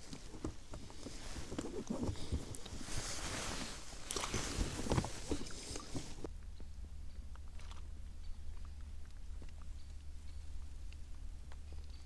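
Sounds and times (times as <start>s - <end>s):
clothing rustling: 0.0s - 6.3s.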